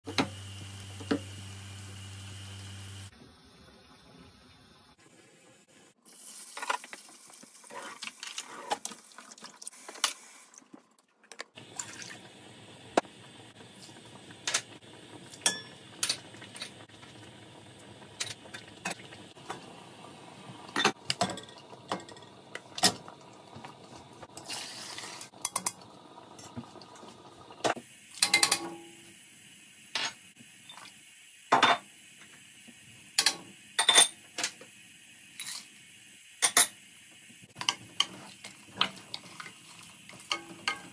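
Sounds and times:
pot boiling: 0.0 - 4.3, 4.9 - 31.2, 31.8 - 40.9
utensils clinking on steel pot: 15.4 - 16.7, 28.2 - 28.8, 40.2 - 40.9.

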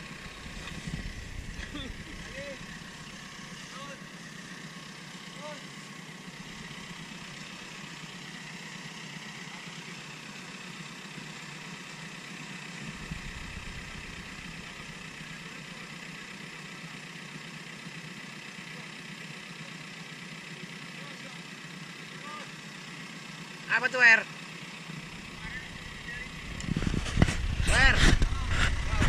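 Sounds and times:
off-road vehicle engine under load: 0.0 - 29.0
wheel churning in deep mud: 12.8 - 15.4.

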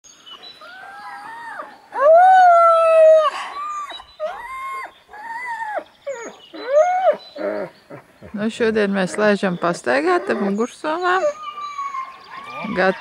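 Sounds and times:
dog howling: 0.6 - 7.7, 9.9 - 13.0.

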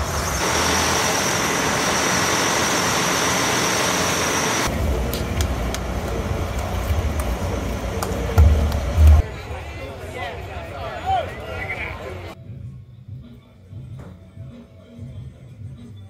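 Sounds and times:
bus engine rushing with whine: 0.0 - 9.4
low outdoor rumble: 0.0 - 10.8.

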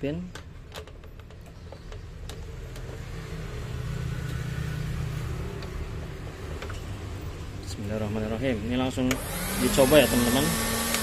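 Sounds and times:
motor vehicle passing: 2.4 - 7.5.

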